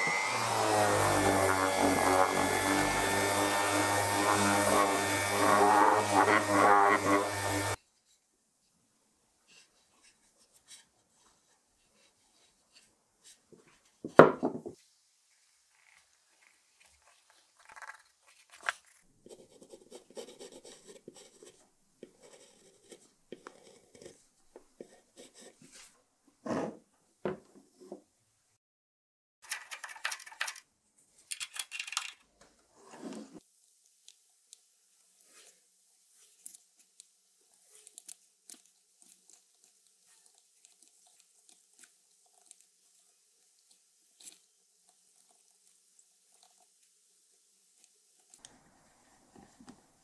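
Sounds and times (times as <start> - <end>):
small metallic clicks and scrapes: 29.4 - 32.2
soft rustle: 32.7 - 47.0.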